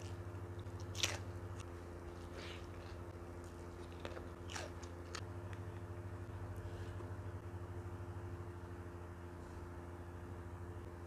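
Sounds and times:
crunchy food chewing: 0.0 - 6.0
steady low hum: 0.0 - 11.0.

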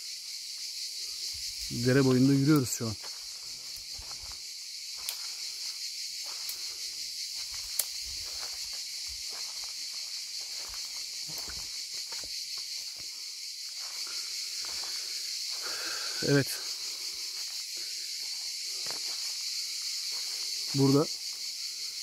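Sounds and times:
insects droning: 0.0 - 22.0
footsteps walking: 3.0 - 4.4, 6.2 - 15.9, 17.2 - 17.6, 18.2 - 20.8.

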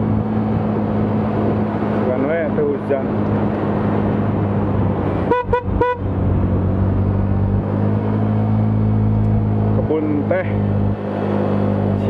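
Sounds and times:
horn beeps: 5.3 - 6.0.

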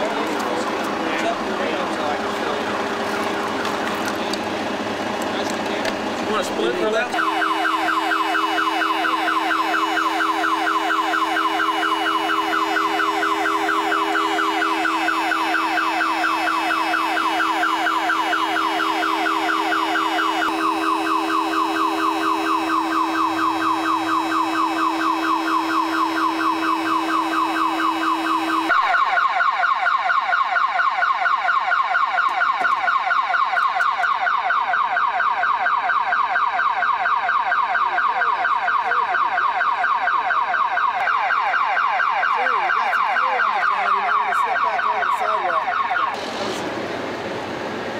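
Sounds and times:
electronic alarm warbling: 6.9 - 29.1.

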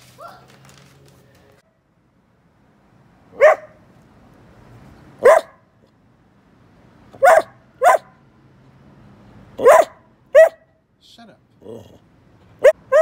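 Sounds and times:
dog barking: 3.4 - 3.8, 5.2 - 5.6, 7.2 - 8.2, 9.6 - 10.7, 12.6 - 13.0.

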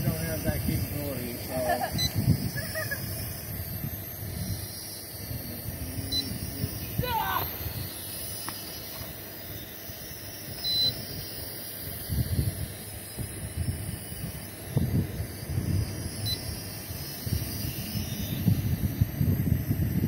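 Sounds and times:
drone propellers whirring: 0.0 - 20.0
wind on microphone: 0.0 - 20.0
short high beep: 10.6 - 11.0.

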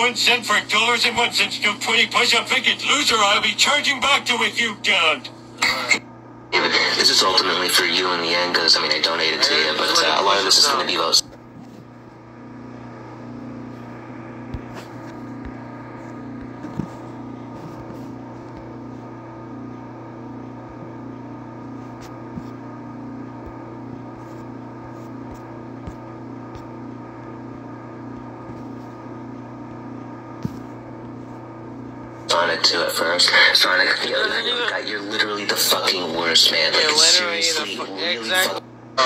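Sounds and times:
motor humming: 6.8 - 39.0.

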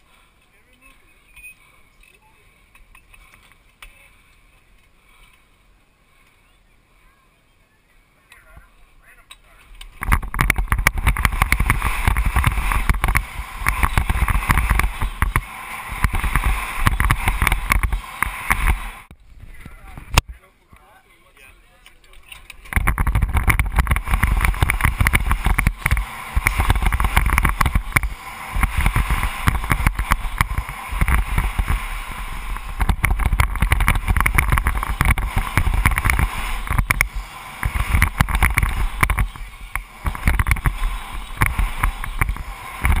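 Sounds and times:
bike rattling over dirt: 9.6 - 20.2, 22.0 - 43.0
wind buffeting microphone: 10.0 - 20.2, 22.7 - 43.0.

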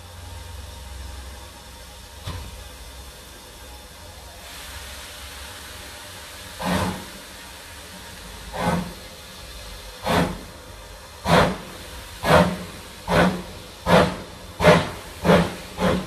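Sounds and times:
locomotive low rumble: 0.0 - 16.0
steam hissing: 0.0 - 16.0
locomotive exhaust chuff: 5.0 - 16.0.

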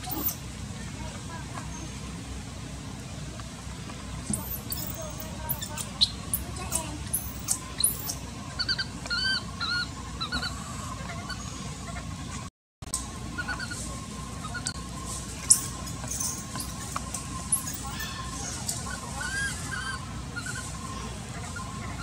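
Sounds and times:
baby macaque squeaky calls: 0.0 - 0.4, 4.3 - 12.0, 13.4 - 14.8, 15.5 - 22.0.

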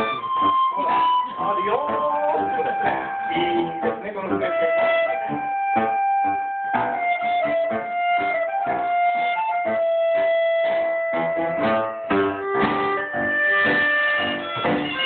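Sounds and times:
accordion: 0.0 - 15.0
violin: 0.0 - 15.0.

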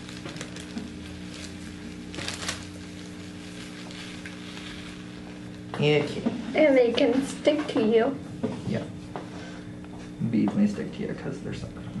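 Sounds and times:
plastic bags rustling: 0.0 - 7.6
electrical hum: 0.0 - 12.0.

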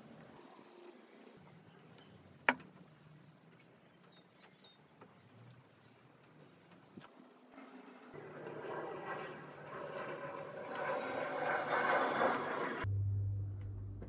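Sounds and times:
bird chirping: 3.8 - 4.9.

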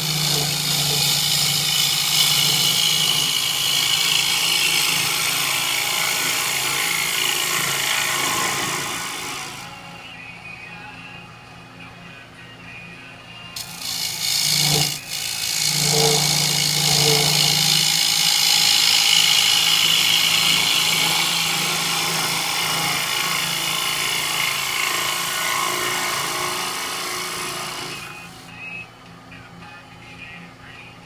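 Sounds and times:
gouge cutting wood on lathe: 0.0 - 9.8, 13.6 - 28.5
lathe humming: 0.0 - 10.2, 13.5 - 28.6.

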